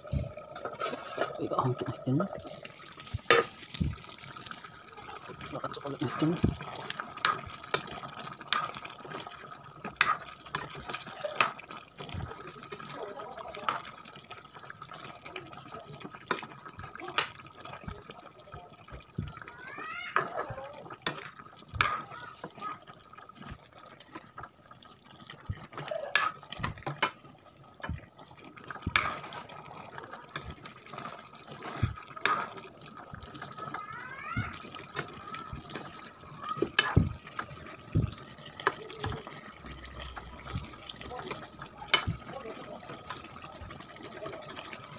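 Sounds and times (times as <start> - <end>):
thick gravy bubbling: 0.0 - 44.9
spatula scraping a wok: 0.6 - 1.4.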